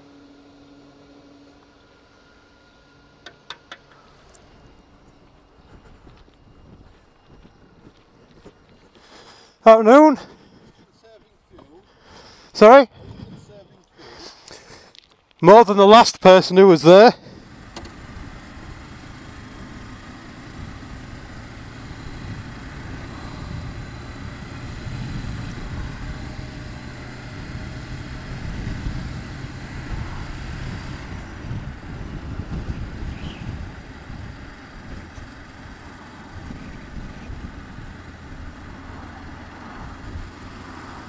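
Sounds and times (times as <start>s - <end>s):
wind and road noise: 0.0s - 41.0s
motorcycle engine running: 17.2s - 41.0s.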